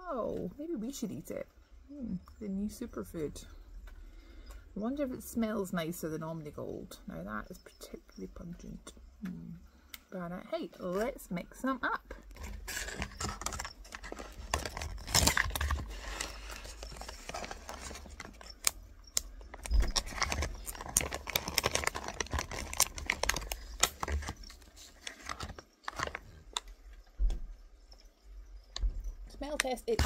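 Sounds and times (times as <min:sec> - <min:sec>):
plastic pouch crinkling: 0:12.3 - 0:26.3.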